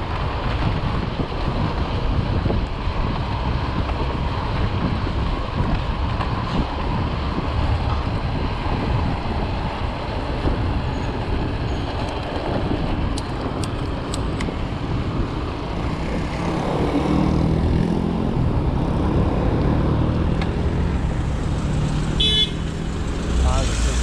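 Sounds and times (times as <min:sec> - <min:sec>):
road traffic noise: 0:00.0 - 0:24.0
vehicle engine hum: 0:00.0 - 0:24.0.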